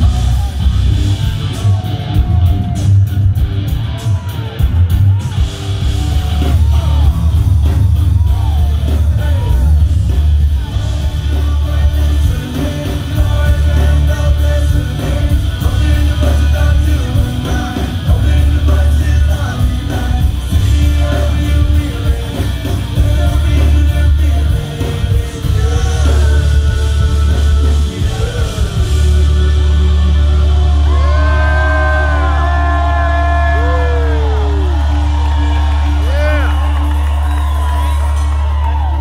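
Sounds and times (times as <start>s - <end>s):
live rock band playing: 0.0s - 39.0s
people singing into microphones: 10.6s - 32.8s.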